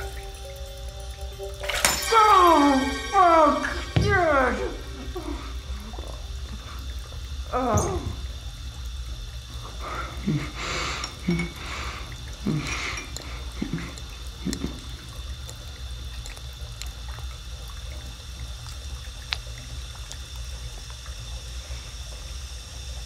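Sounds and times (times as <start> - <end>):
low hum with hiss: 0.0 - 23.0
breath: 9.8 - 14.0.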